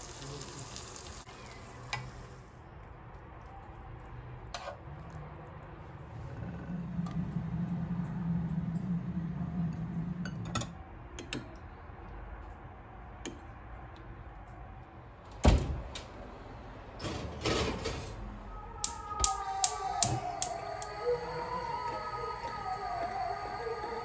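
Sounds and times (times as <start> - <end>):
low hum: 5.6 - 12.9, 18.2 - 24.0.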